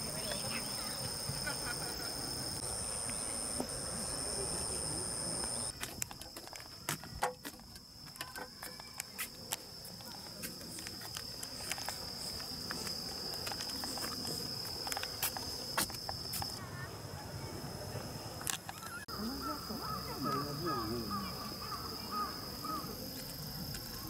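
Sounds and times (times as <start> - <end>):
higher insect trill: 0.0 - 24.0
insects trilling: 0.0 - 24.0.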